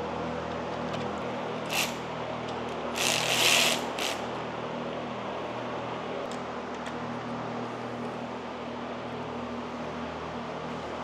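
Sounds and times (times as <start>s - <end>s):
steady fan hum: 0.0s - 11.0s
ratchet wrench clicking: 3.0s - 4.2s.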